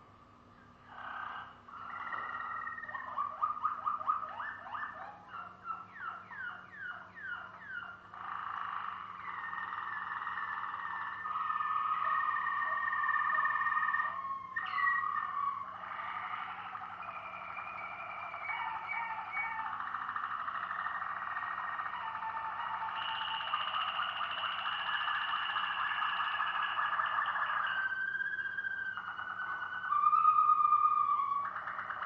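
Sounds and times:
canary singing trills: 0.6s - 32.0s.

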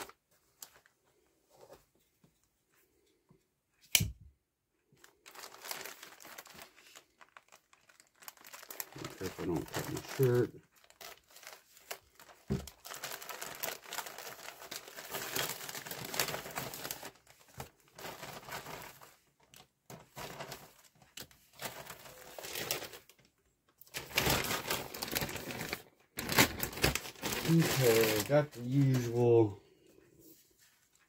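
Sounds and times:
plastic bag crinkling: 5.0s - 29.6s.

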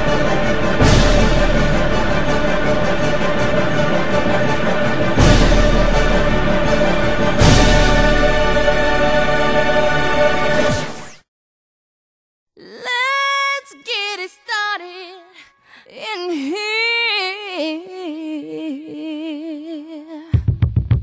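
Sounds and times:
solo voice singing with vibrato: 12.6s - 20.4s.

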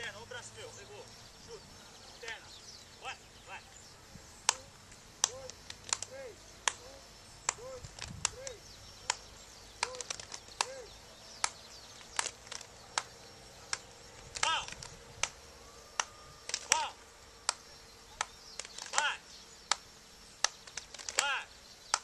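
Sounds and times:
people shouting calls: 0.0s - 11.2s, 12.9s - 19.4s, 21.1s - 21.6s
sharp smacks: 4.4s - 15.4s, 16.0s - 22.0s.

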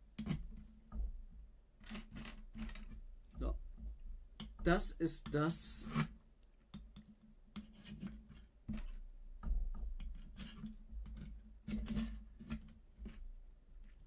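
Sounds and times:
dull knocks: 0.8s - 1.5s, 8.7s - 10.2s.

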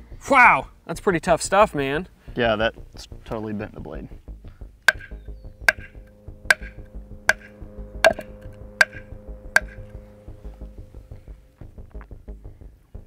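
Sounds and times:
knife striking ceramic plate: 4.9s - 7.5s, 8.1s - 9.0s, 9.6s - 9.8s.

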